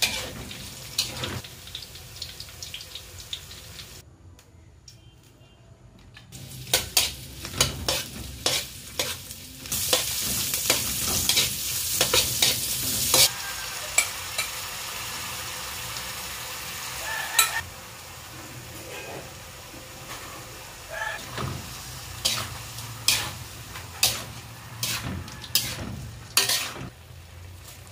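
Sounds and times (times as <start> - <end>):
spatula scraping wok: 0.0 - 1.4, 6.4 - 14.6, 18.2 - 27.0
onion sizzling in hot oil: 0.0 - 4.0, 6.3 - 27.9.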